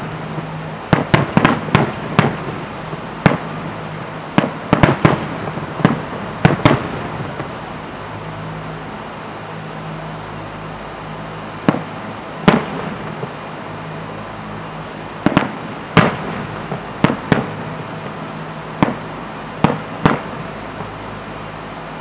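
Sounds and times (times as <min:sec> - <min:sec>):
firework bangs: 0:00.0 - 0:07.7, 0:11.6 - 0:13.5, 0:15.2 - 0:21.0
steady low hum: 0:00.0 - 0:22.0.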